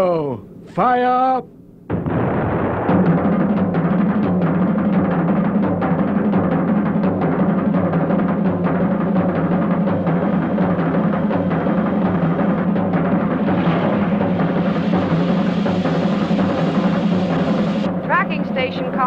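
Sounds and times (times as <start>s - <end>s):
pounding timpani and drums: 1.9s - 19.0s
low orchestral drone: 11.3s - 18.7s.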